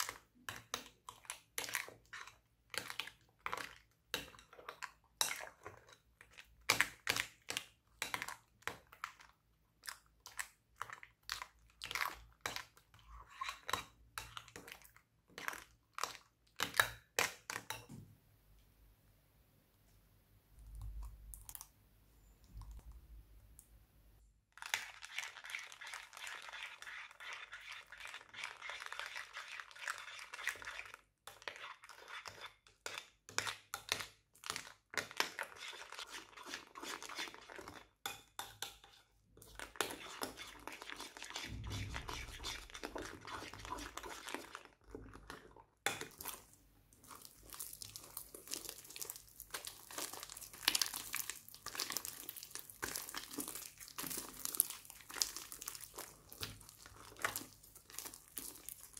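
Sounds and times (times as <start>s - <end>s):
slime crackling and crinkling: 40.4s - 58.9s.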